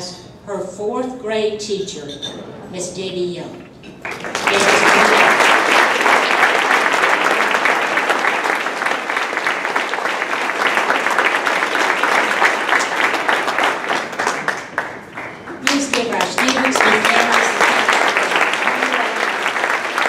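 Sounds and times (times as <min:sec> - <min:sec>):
audience applauding: 0:04.0 - 0:20.0.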